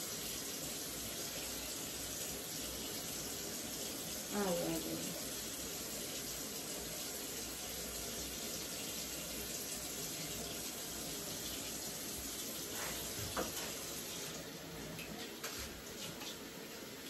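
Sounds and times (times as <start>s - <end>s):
sink tap running: 0.0s - 17.0s.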